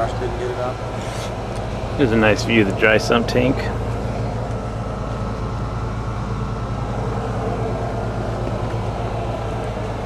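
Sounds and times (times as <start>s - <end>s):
engine idling: 0.0s - 10.0s.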